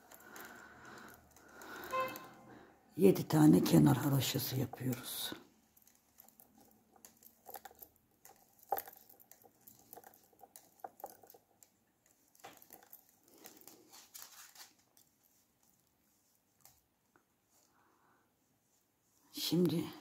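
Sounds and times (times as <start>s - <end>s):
knitting needles clicking: 0.0s - 2.4s, 3.1s - 15.8s
yarn rustling: 0.0s - 19.4s.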